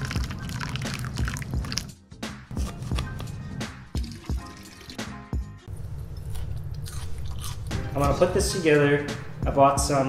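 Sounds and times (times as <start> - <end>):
water pouring from kettle: 0.0 - 1.9, 4.0 - 5.1
background music with steady beat: 0.0 - 5.7, 7.5 - 10.0.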